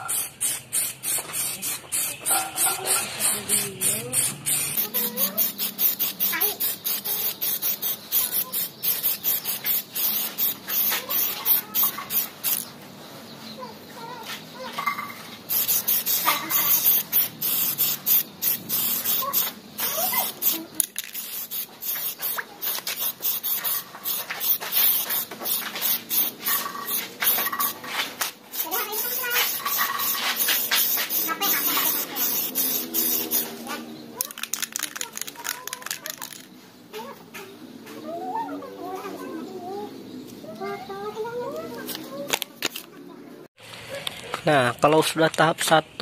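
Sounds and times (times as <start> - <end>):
spray paint can hissing: 0.0 - 12.8, 15.4 - 36.6.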